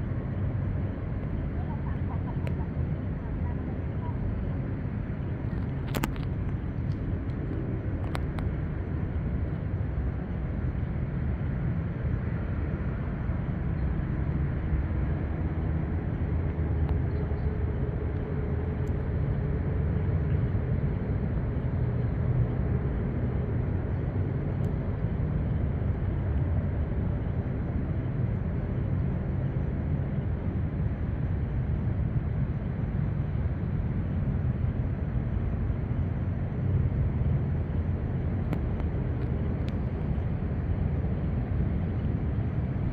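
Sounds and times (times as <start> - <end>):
distant traffic rumble: 0.0 - 42.9.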